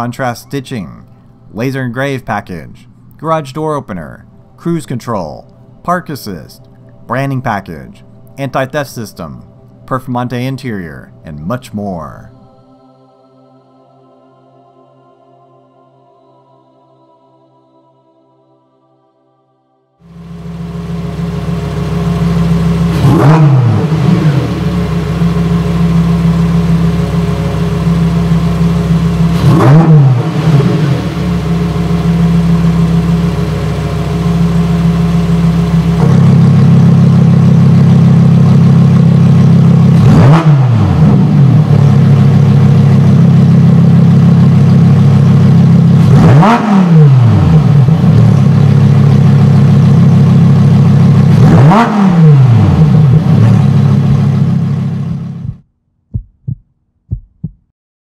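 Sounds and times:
car engine starting and idling: 20.0s - 55.7s
engine throttle blips: 20.1s - 57.6s.

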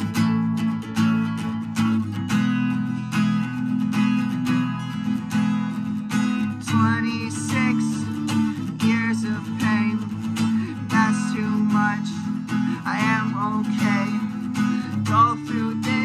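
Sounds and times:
acoustic guitar strumming: 0.0s - 16.0s
man singing: 6.5s - 16.0s.

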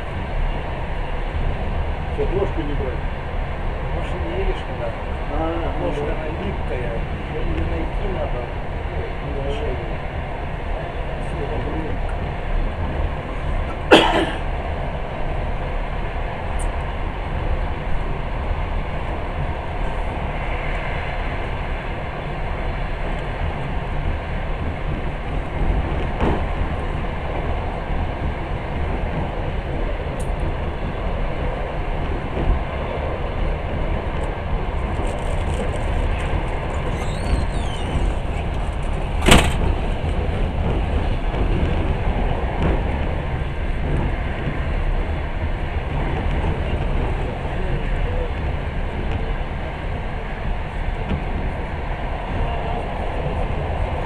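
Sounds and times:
train rumbling on rails: 0.0s - 54.0s
faint high squeals: 36.8s - 38.4s
sharp knock: 39.2s - 39.7s.

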